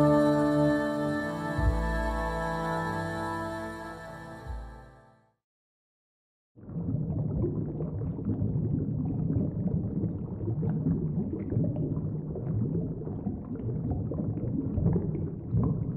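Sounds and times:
rumbling underwater water wash: 6.6 - 15.9.

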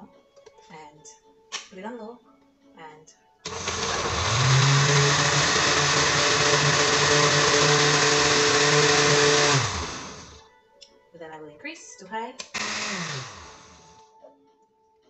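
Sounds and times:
blender motor running: 3.5 - 10.4, 12.4 - 14.0.

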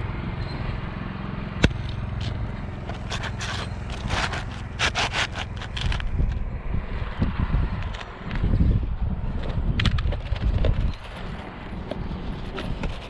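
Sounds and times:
steady low rumble: 0.0 - 13.0
shingle scraping against shingles: 1.6 - 6.4.

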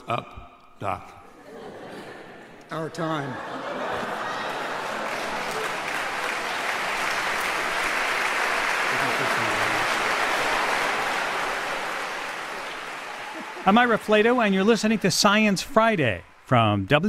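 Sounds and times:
audience applauding: 3.6 - 17.0.

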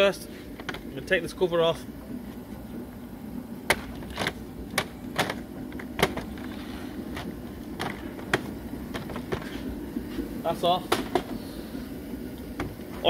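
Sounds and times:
plastic cover clicking and knocking: 3.7 - 6.4, 7.2 - 9.5.

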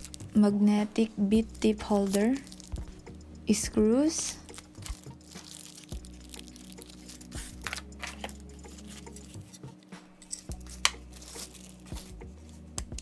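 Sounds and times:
plastic bag crinkling: 1.9 - 2.8, 4.4 - 9.4, 10.6 - 12.1.

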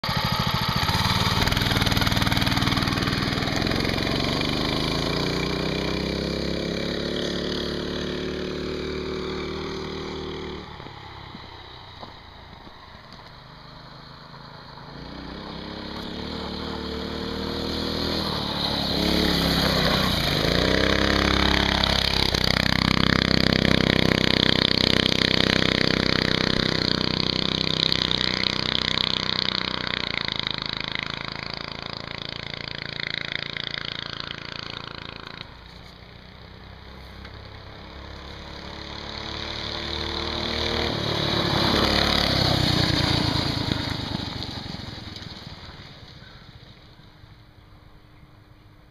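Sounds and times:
minibike engine revving: 0.0 - 47.3.

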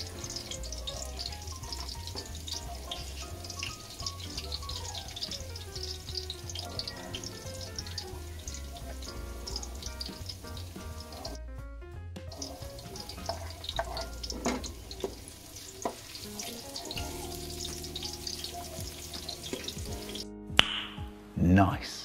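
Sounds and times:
onion sizzling in hot oil: 0.0 - 11.4, 12.3 - 20.2
background music: 0.0 - 22.0
spatula scraping a wok: 12.4 - 16.6.

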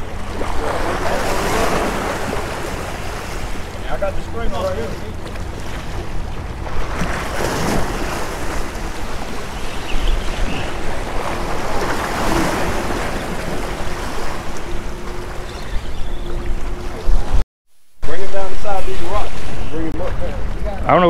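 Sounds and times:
small waves splashing on rocks: 0.2 - 3.7, 4.8 - 14.7.

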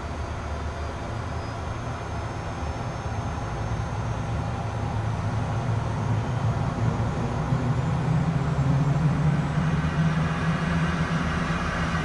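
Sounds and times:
jet engine spooling up: 7.0 - 12.0.

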